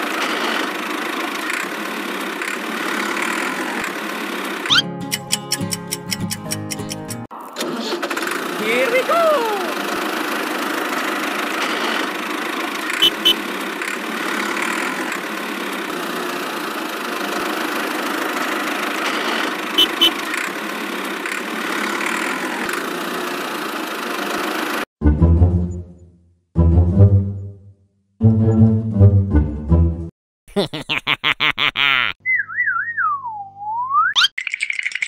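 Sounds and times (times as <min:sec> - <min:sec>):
tractor engine running: 0:00.0 - 0:24.8.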